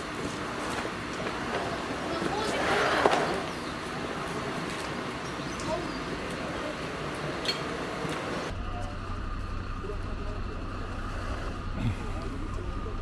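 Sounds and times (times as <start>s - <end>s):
people talking: 2.0s - 4.7s, 5.4s - 13.0s
truck engine humming: 3.3s - 13.0s.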